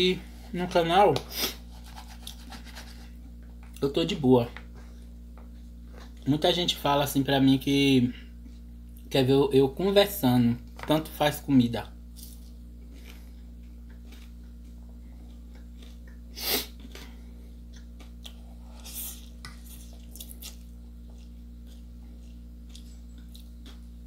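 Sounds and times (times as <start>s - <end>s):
steady low hum: 0.0s - 24.0s
person chewing: 12.2s - 24.0s.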